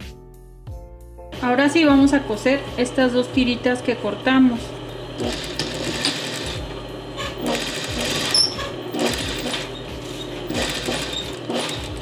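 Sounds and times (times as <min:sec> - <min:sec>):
sewing machine stitching: 0:05.2 - 0:12.0.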